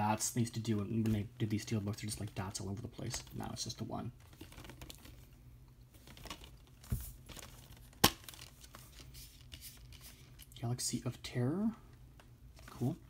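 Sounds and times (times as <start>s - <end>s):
plastic wrap crinkling: 3.0s - 10.4s.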